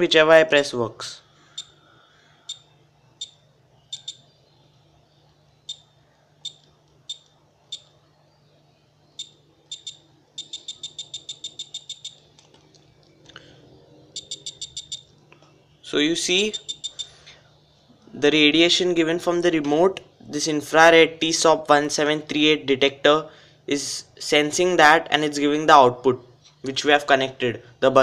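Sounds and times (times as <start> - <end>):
buzzer high-pitched beeps: 1.6 - 1.8, 2.5 - 4.3, 5.6 - 8.0, 9.2 - 12.2, 14.2 - 15.1, 16.4 - 17.2.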